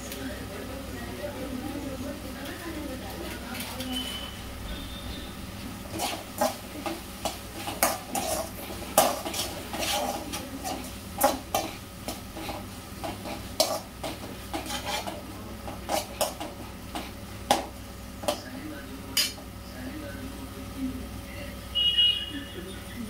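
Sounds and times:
spoon scraping metal pan: 5.8 - 17.2.

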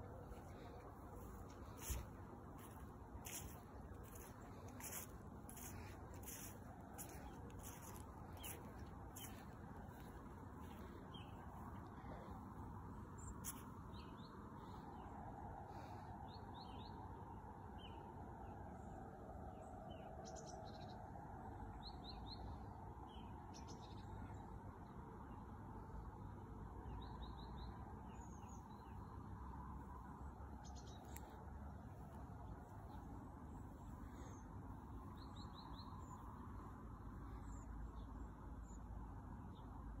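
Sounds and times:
small birds chirping: 0.0 - 14.8
low background noise: 0.0 - 40.0.

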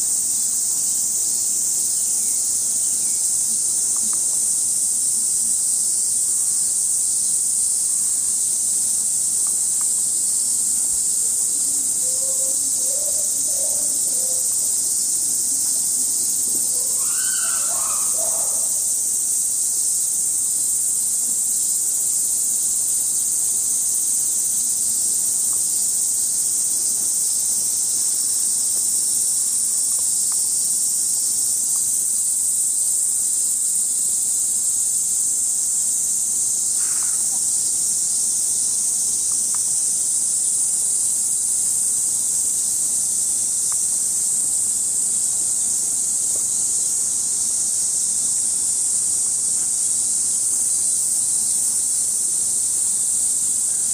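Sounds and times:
cicada chorus drone: 0.0 - 53.9.

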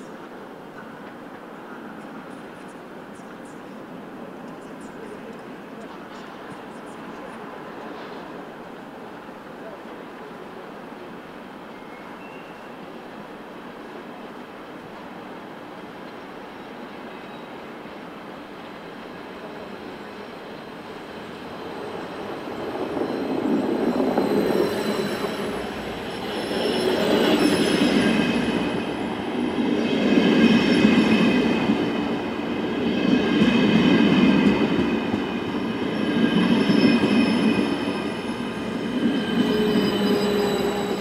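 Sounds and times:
train rumbling past: 0.0 - 41.0
train wheels squealing: 11.7 - 12.9, 16.5 - 17.8, 18.7 - 41.0.

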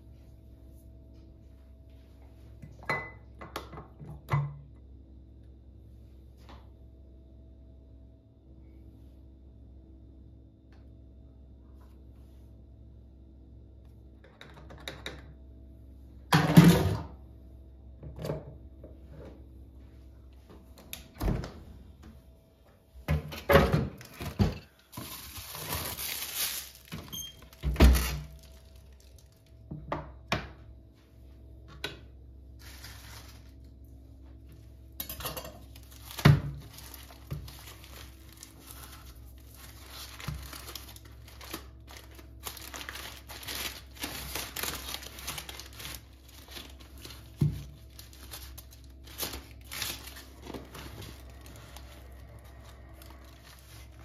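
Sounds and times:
refrigerator door opening: 21.1 - 21.7
paper package crinkling: 24.0 - 29.5, 32.6 - 33.7, 35.6 - 54.0.

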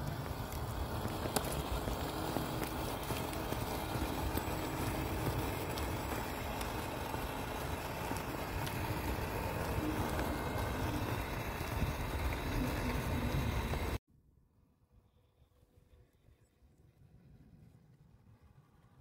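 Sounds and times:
low rumble: 0.0 - 14.0
rc truck motors whining: 0.0 - 14.0.

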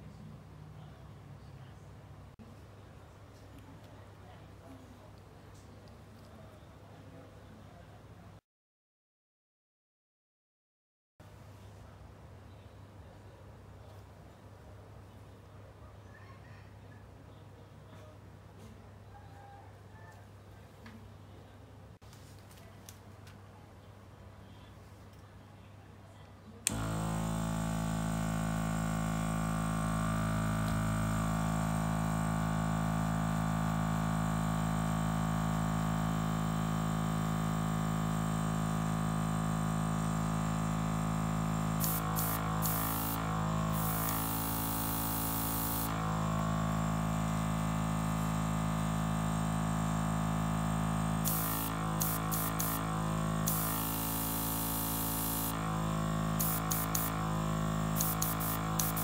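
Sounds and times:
compressor motor humming: 26.6 - 59.0
airbrush hissing air: 41.6 - 46.0, 51.2 - 59.0.

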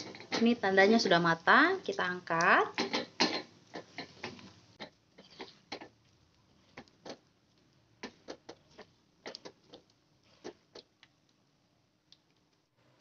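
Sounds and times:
spatula and strainer tapping pan: 0.0 - 1.1, 1.9 - 6.0, 8.0 - 10.9.

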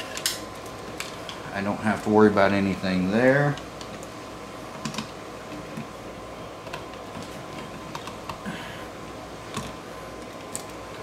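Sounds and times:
rustling of electrical wires: 0.0 - 8.5.

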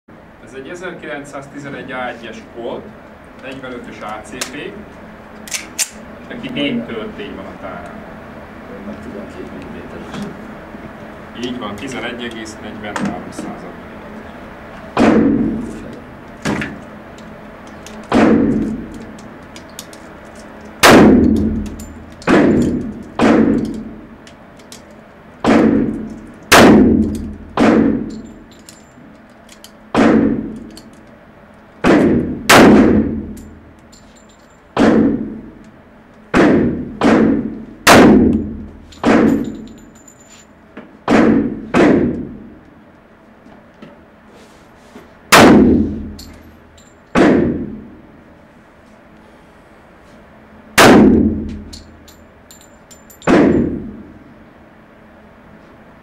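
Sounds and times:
pistol shots echoing indoors: 18.0 - 19.0, 20.8 - 24.0, 25.4 - 28.4, 29.9 - 30.9, 31.8 - 33.6, 34.8 - 35.4, 36.3 - 39.7, 41.0 - 42.4, 45.3 - 46.3, 47.1 - 47.8, 50.8 - 52.1, 53.2 - 54.0.

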